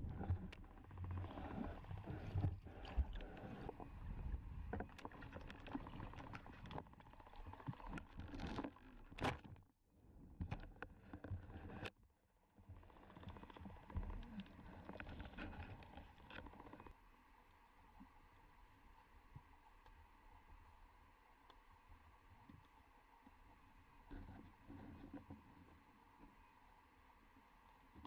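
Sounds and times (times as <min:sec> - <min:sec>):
muffled underwater rumbling: 0:00.0 - 0:09.2
underwater clicks and knocks: 0:04.6 - 0:09.6.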